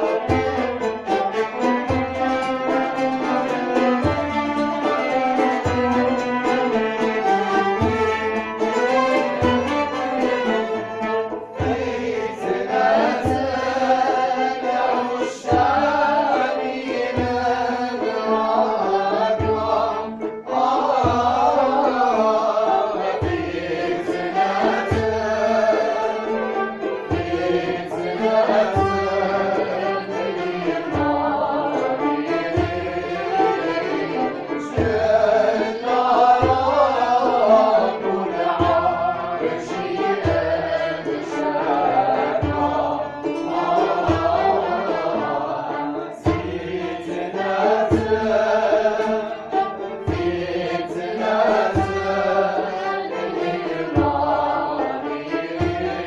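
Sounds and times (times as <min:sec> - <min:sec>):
bowed strings: 0:00.0 - 0:56.0
group of voices singing: 0:00.0 - 0:56.0.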